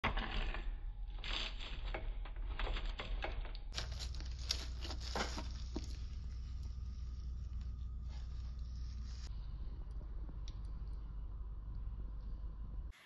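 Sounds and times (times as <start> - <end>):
pizza wheel crunching crust: 0.1 - 9.3.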